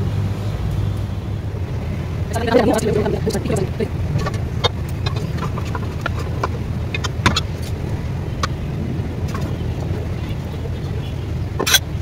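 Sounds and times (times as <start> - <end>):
steady low rumble: 0.0 - 12.0
metal pots knocking and scraping: 2.4 - 8.6.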